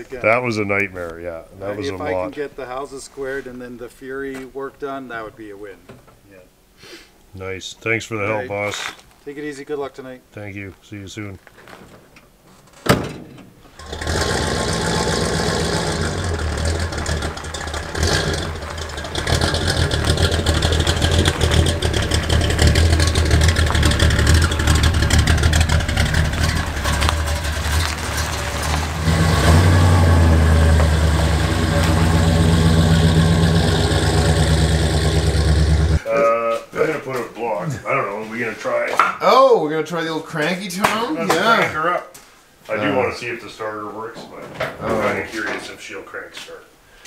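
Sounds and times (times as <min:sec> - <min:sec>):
car engine starting and accelerating: 0:13.8 - 0:36.0.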